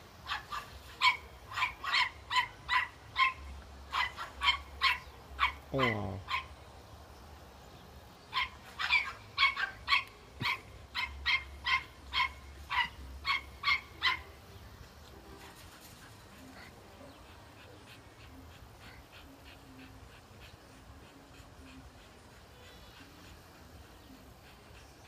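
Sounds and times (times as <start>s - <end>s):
dog barking rapidly: 0.2s - 6.5s, 8.3s - 14.3s.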